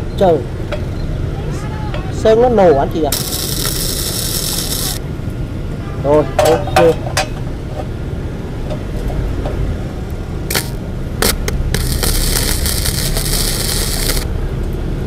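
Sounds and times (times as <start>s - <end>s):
welding arc crackling hiss: 3.1s - 5.0s, 10.5s - 14.3s.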